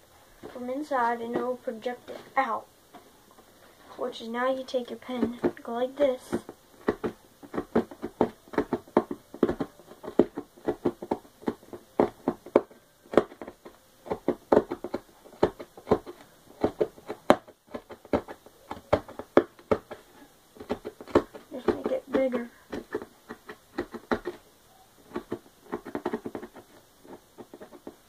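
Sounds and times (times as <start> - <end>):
pen punching through cardboard: 5.1 - 24.4, 25.0 - 28.0.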